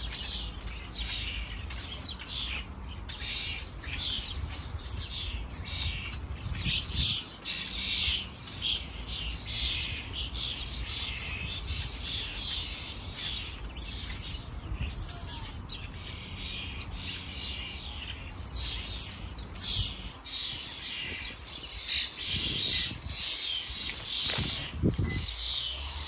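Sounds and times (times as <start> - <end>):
sparrows chirping: 0.0 - 26.0.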